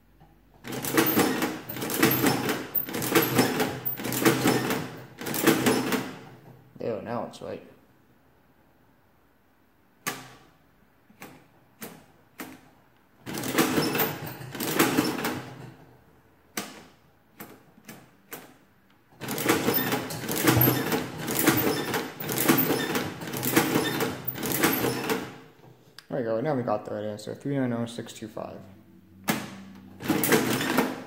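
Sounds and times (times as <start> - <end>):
adding machine crank clattering: 0.7 - 6.2, 19.2 - 25.4.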